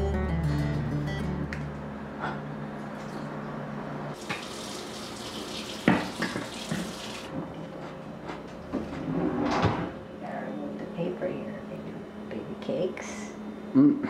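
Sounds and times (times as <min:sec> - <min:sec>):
kitchen tap running: 0:04.2 - 0:07.3.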